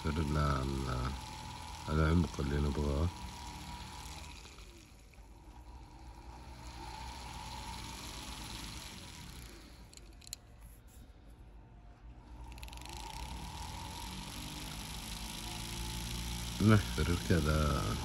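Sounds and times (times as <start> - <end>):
rotary tool cutting glue stick: 6.5 - 10.6, 12.4 - 18.0.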